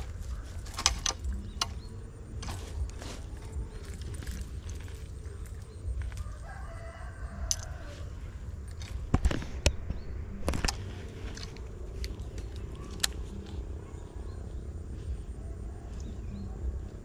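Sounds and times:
sharp clicks: 0.0s - 2.6s, 7.5s - 7.7s
rooster crowing: 6.1s - 8.2s.

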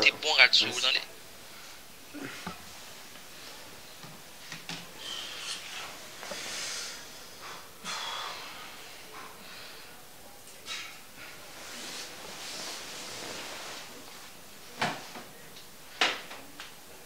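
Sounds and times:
noisy exhales: 5.0s - 9.9s
man breathing: 5.0s - 10.0s
bedding rustling: 11.3s - 16.0s.

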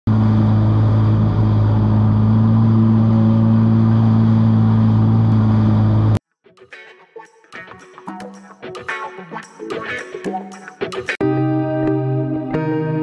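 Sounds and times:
jet ski engine running: 0.1s - 6.2s.

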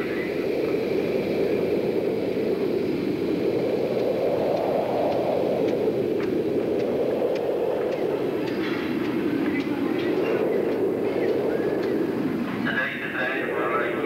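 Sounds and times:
train rumbling past: 0.0s - 3.2s, 4.6s - 14.0s
faint high ticks: 4.0s - 9.7s.

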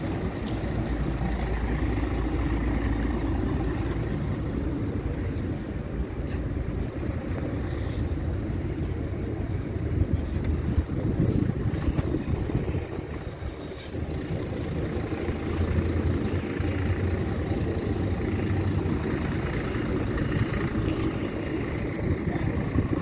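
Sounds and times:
bus diesel engine idling: 0.0s - 23.0s.

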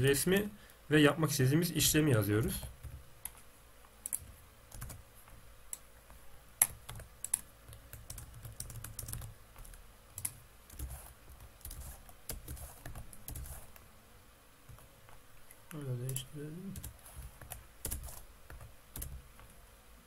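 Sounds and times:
computer keyboard typing: 4.0s - 5.0s, 6.6s - 13.7s, 16.0s - 19.2s.

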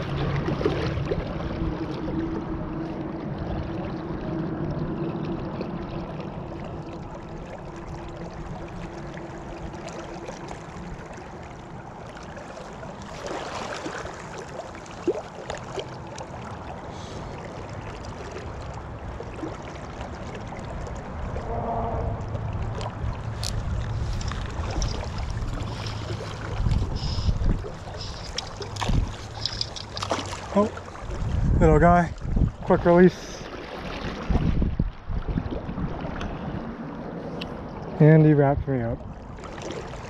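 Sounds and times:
river water rushing: 0.0s - 31.4s.

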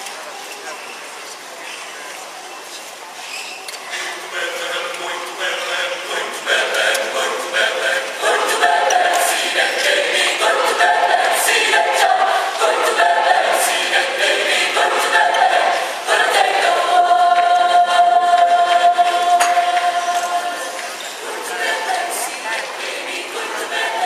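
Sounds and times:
mixed choir singing: 3.9s - 24.0s.

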